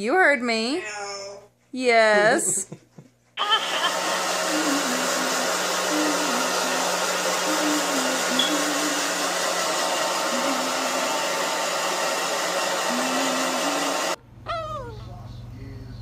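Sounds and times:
hair dryer running: 0:03.4 - 0:14.2.

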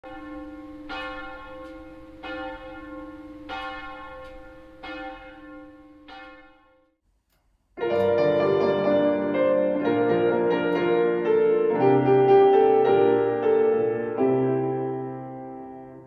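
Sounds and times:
church bell tolling: 0:00.0 - 0:06.9.

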